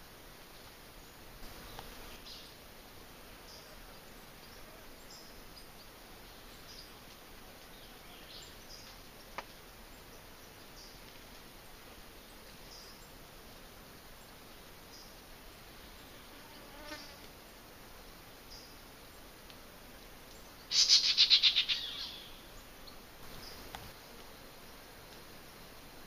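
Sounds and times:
steady forest hiss: 0.0 - 26.0
high bird chirps: 20.7 - 22.4.

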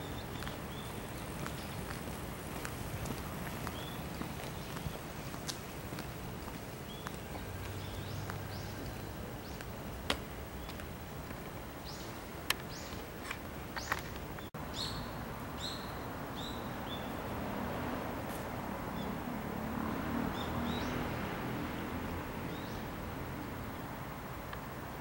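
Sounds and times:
birds chirping: 0.0 - 17.3
steady background noise: 0.0 - 25.0.

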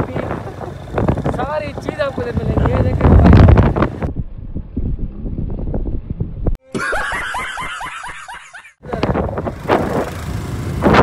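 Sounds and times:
wind buffeting microphone: 0.0 - 6.6, 8.8 - 11.0
rapid laughter sound effect: 6.7 - 8.8.

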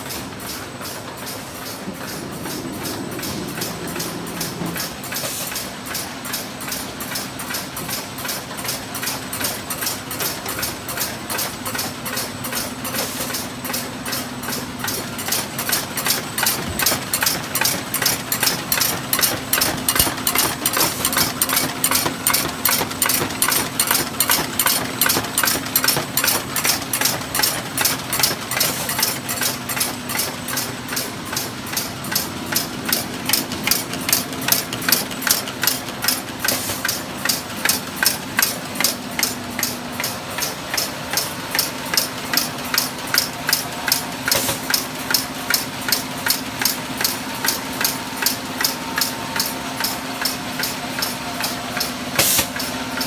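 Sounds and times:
machine hum: 0.0 - 51.8
machine clicking rapidly: 0.0 - 53.0.

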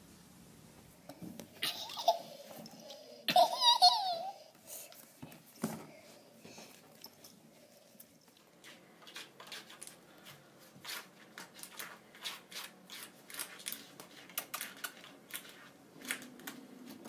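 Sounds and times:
cat claws scratching: 8.0 - 17.0.

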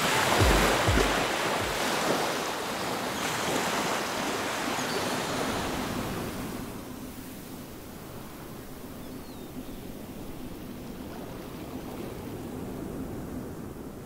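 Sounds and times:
sea surf hissing: 0.0 - 7.4
low thumps: 0.4 - 1.8.

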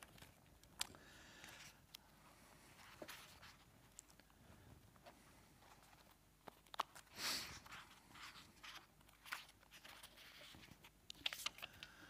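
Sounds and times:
paper sheets rustling: 5.7 - 11.8.

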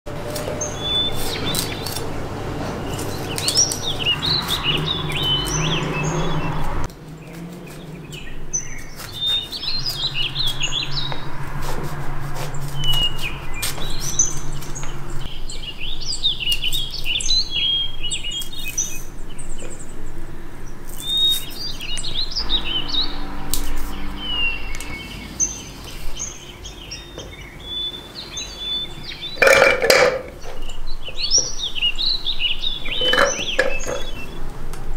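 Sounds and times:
small birds chirping: 0.2 - 11.3, 12.3 - 29.6, 30.2 - 34.6
knife cutting cauliflower on board: 11.5 - 14.1.

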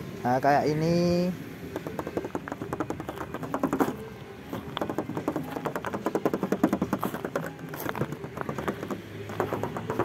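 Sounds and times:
footsteps crunching on gravel: 3.1 - 5.7, 6.6 - 10.0.

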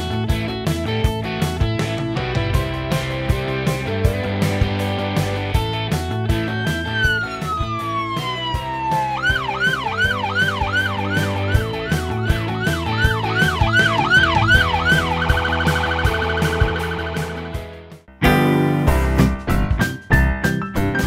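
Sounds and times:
music with a steady beat: 0.0 - 21.0
police siren: 6.3 - 17.8.

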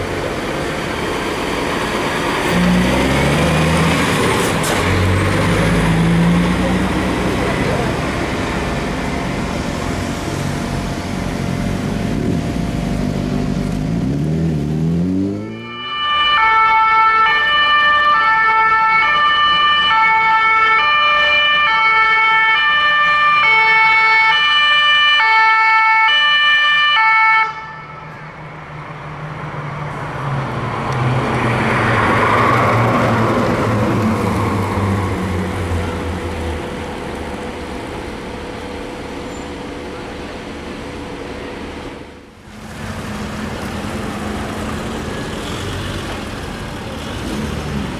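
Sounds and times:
heavy vehicle engine passing: 0.0 - 16.2, 28.3 - 47.9
two-tone siren: 15.2 - 28.1.

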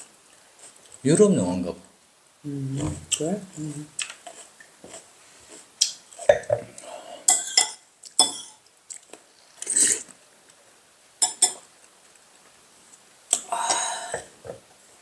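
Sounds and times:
utensils clinking on dishes: 7.3 - 8.6, 11.2 - 11.6.

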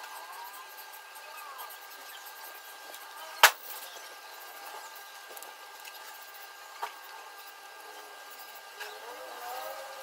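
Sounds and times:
sharp click: 3.4 - 3.6.

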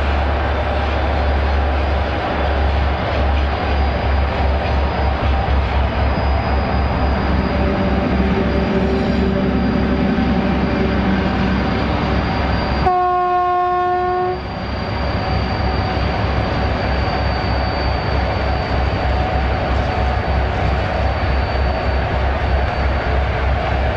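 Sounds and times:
diesel locomotive engines throbbing: 0.0 - 23.9
locomotive horn blast: 12.8 - 14.4.

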